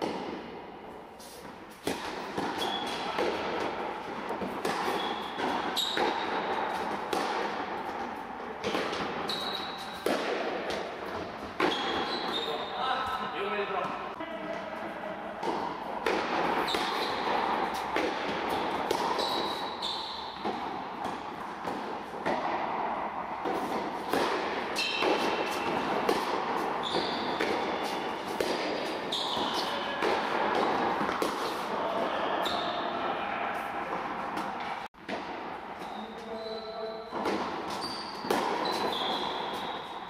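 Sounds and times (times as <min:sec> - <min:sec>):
tennis ball bouncing: 0:00.0 - 0:00.5, 0:01.2 - 0:12.5, 0:15.4 - 0:32.7, 0:37.1 - 0:39.9
rackets striking tennis ball: 0:00.0 - 0:12.7, 0:13.8 - 0:40.0.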